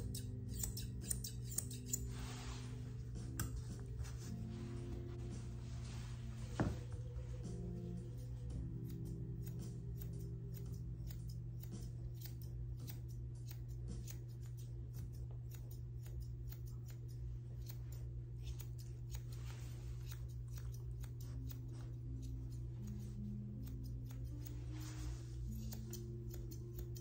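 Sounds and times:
grooming shears snipping: 0.0s - 5.3s, 7.3s - 27.0s.

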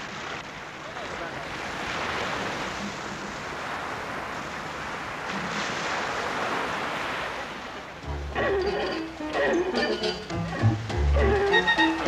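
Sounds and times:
surf breaking on beach: 0.0s - 8.0s.

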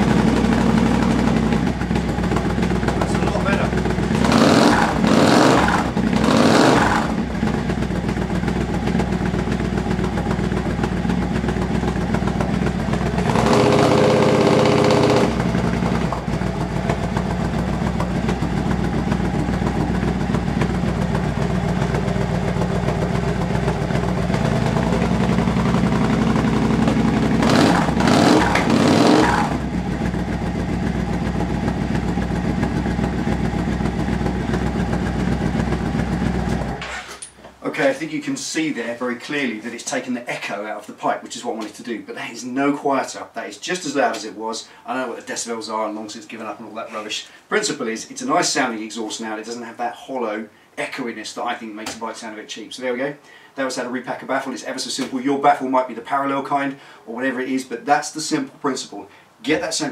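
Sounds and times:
motorcycle idling: 0.0s - 36.8s
motorcycle throttle blips: 0.0s - 36.8s.

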